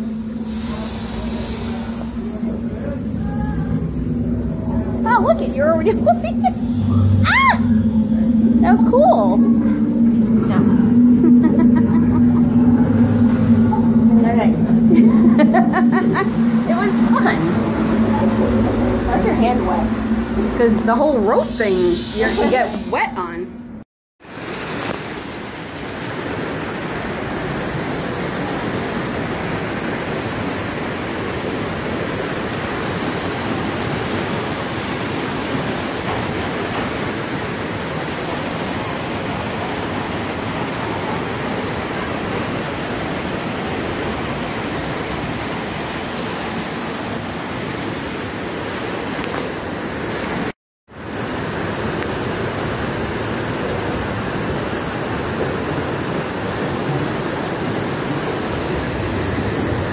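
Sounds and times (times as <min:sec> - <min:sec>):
waterfall rushing: 0:00.0 - 0:22.9.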